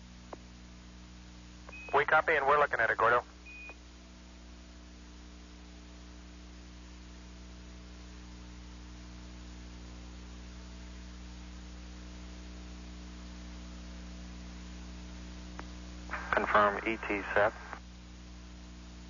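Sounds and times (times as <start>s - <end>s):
audio line hiss: 0.0s - 19.0s
electrical mains hum: 0.0s - 19.0s.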